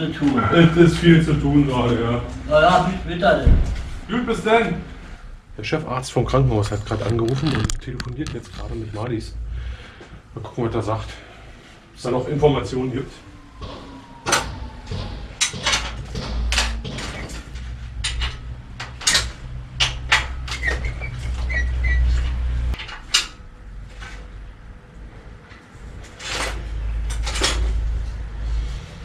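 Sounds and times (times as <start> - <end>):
short squeak: 20.6 - 22.4.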